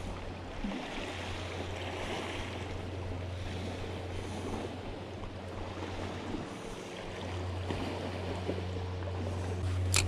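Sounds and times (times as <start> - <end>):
sea washing against rocky shore: 0.0 - 10.0
faint handling clicks: 9.6 - 10.0.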